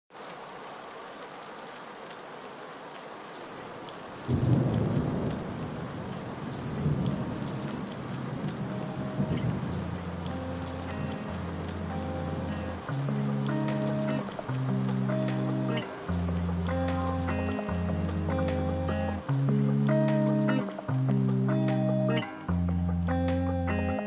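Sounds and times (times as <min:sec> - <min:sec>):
steady rain hiss: 0:00.1 - 0:24.0
rolling thunder: 0:04.2 - 0:10.1
low held music notes: 0:06.8 - 0:24.0.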